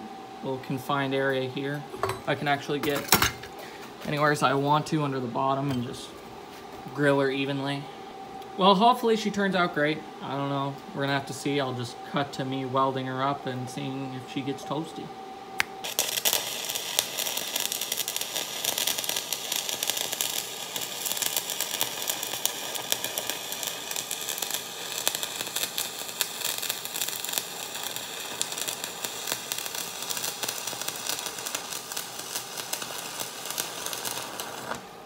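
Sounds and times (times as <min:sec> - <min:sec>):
welding arc crackling: 0:15.6 - 0:35.0.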